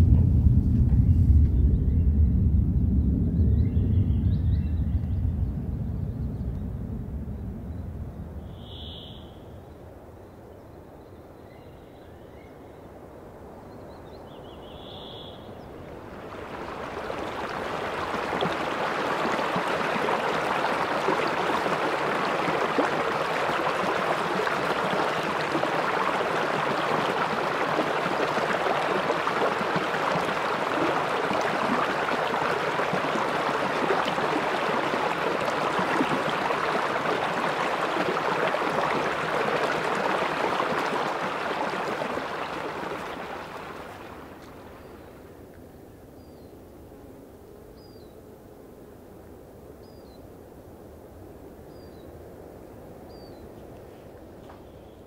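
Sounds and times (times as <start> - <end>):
brook rushing and splashing: 15.7 - 45.1.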